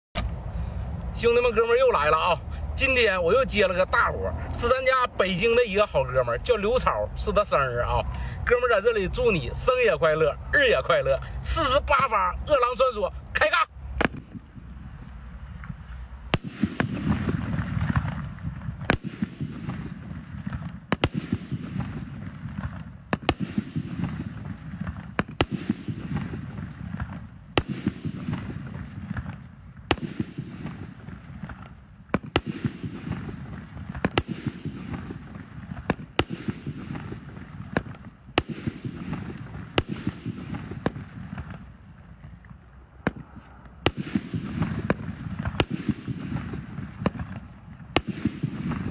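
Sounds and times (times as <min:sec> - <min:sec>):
small fireworks pops: 0:00.2 - 0:00.4, 0:14.0 - 0:48.9
fireworks bursting with sharp bangs: 0:00.2 - 0:48.9.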